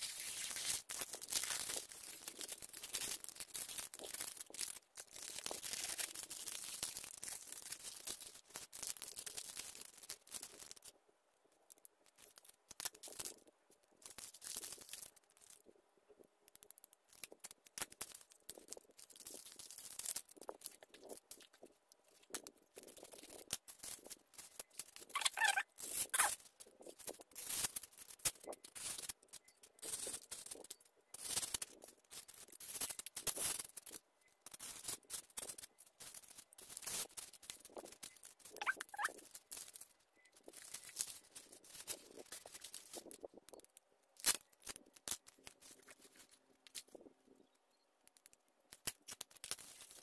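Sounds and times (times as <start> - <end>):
plastic and foil crinkling: 0.0 - 11.0, 11.6 - 15.8, 16.5 - 47.4, 48.1 - 50.0
short squeaks: 25.1 - 26.4, 38.6 - 39.2.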